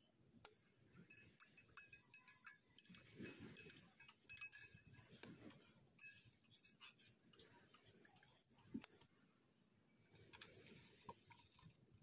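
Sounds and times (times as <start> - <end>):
metal spoons clinking against glass: 1.0 - 7.1.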